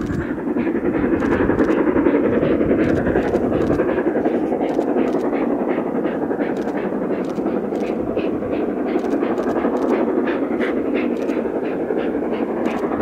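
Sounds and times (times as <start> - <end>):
steam train running: 0.0 - 13.0.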